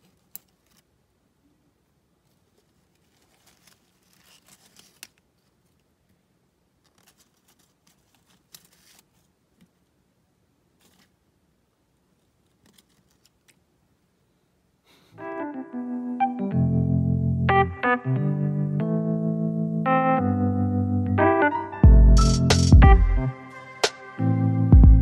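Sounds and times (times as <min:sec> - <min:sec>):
electric piano music: 0:15.2 - 0:25.0.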